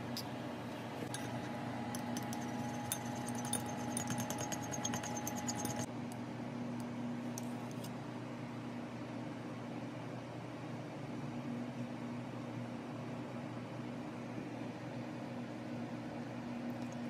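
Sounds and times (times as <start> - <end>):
steady low hum: 0.0 - 17.0
chopsticks clicking against bowl: 2.0 - 5.9.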